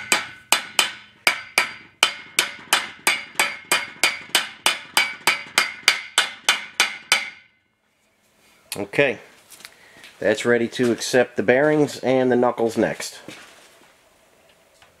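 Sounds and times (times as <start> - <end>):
hammer tapping on steel: 0.0 - 7.6.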